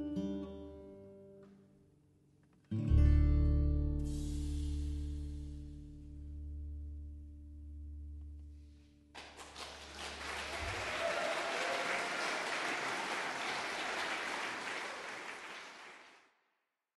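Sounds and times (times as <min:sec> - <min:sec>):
audience applauding: 0:09.2 - 0:16.2.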